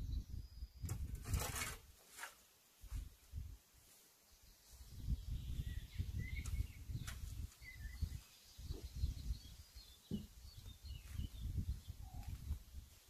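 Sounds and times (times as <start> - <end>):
faint bird chirps: 0.0 - 1.1, 4.2 - 12.8.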